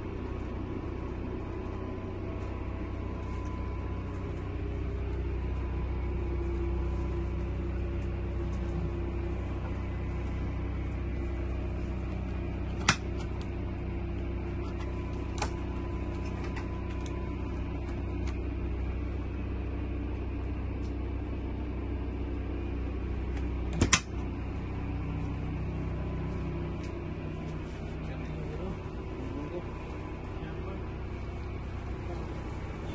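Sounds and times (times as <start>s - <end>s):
low rumble: 0.0s - 32.9s
refrigerator door latch clicks: 23.7s - 24.1s.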